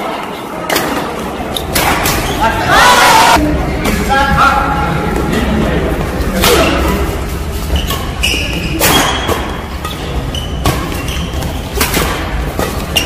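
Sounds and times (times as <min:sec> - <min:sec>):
rackets hitting shuttlecock: 0:00.7 - 0:02.4, 0:07.8 - 0:13.0
shoes squeaking on court floor: 0:06.4 - 0:13.0.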